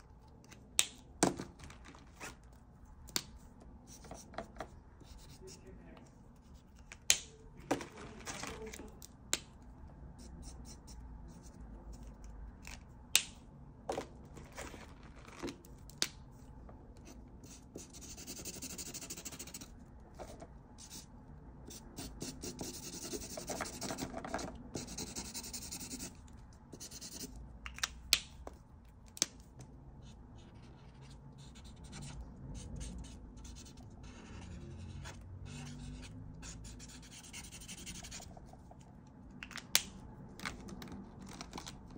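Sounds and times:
marker scratching on paper: 0:03.3 - 0:06.9, 0:10.2 - 0:12.1, 0:17.0 - 0:21.1, 0:21.7 - 0:27.4, 0:30.0 - 0:38.7.

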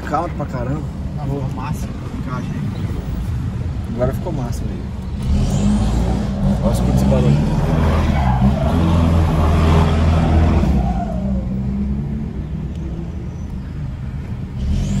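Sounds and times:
turbocharged engine accelerating: 0:05.2 - 0:12.3.

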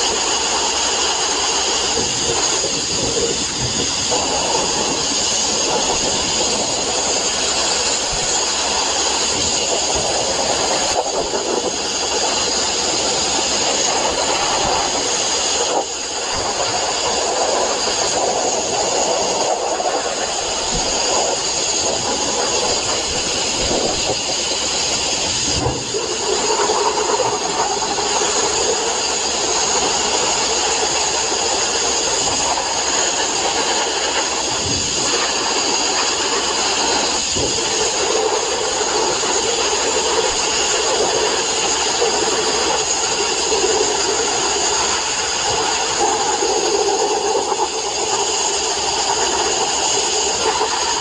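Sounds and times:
sandblaster hissing: 0:00.0 - 0:51.0.

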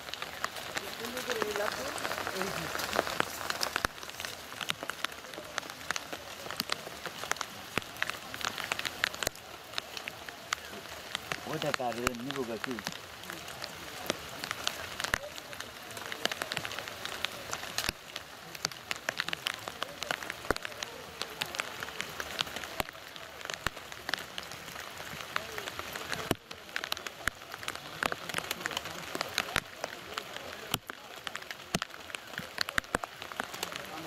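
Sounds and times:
rain falling: 0:00.0 - 0:34.0
raindrop hits: 0:00.0 - 0:34.0.

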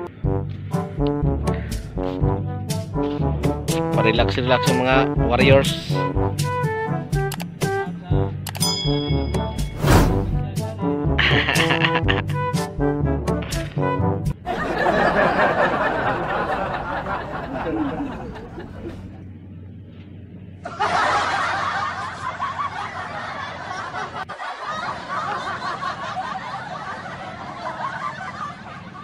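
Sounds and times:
people laughing: 0:11.2 - 0:12.4, 0:14.5 - 0:19.2, 0:20.6 - 0:29.0.

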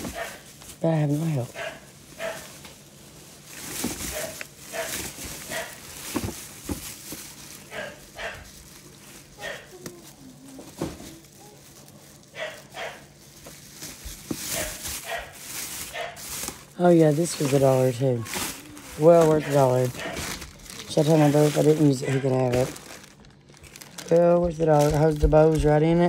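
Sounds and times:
plastic bag crinkling: 0:00.0 - 0:26.0.

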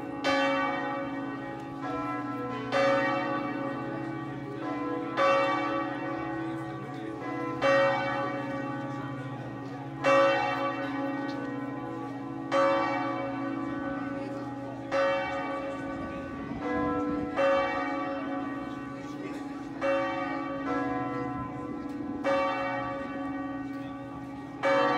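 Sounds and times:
church bell striking: 0:00.0 - 0:24.9.

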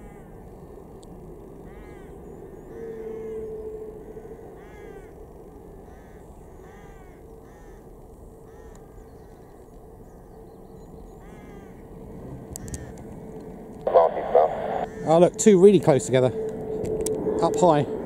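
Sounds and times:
birds calling: 0:00.0 - 0:16.4
distant jet engine whine: 0:00.0 - 0:18.0.

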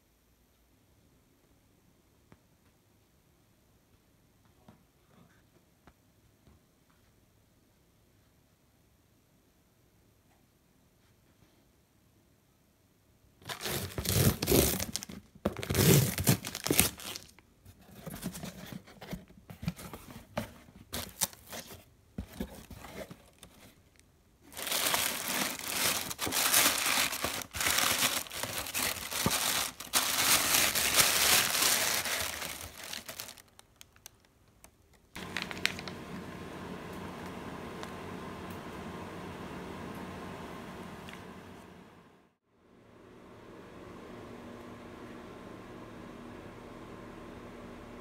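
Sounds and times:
paper packing wrap crinkling: 0:13.4 - 0:36.2.

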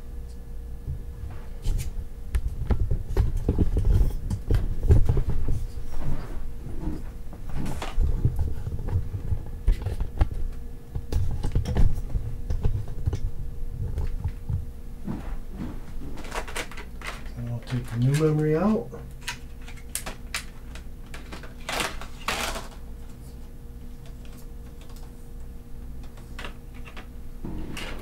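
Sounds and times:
faint steady hum: 0:00.0 - 0:28.0
hands handling computer parts: 0:15.0 - 0:28.0
packaging rustling: 0:16.0 - 0:18.3, 0:19.2 - 0:22.8.

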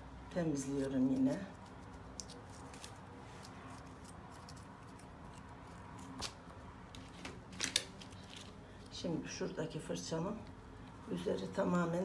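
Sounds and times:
faint steady background noise: 0:00.0 - 0:12.0
rustling: 0:00.6 - 0:09.0.

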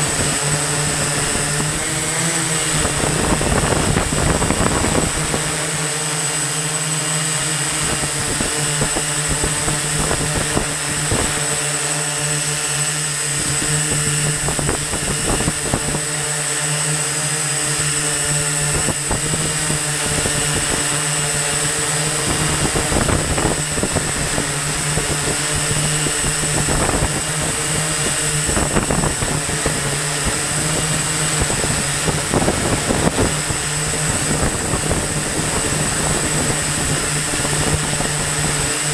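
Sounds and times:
drone motors humming and whining: 0:00.0 - 0:38.9.

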